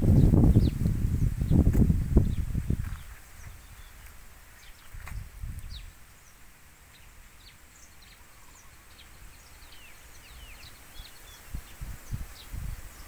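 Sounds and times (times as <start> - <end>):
wind buffeting microphone: 0.0 - 6.0, 10.3 - 13.0
small birds chirping: 0.0 - 13.0
soft wind hiss: 0.0 - 13.0.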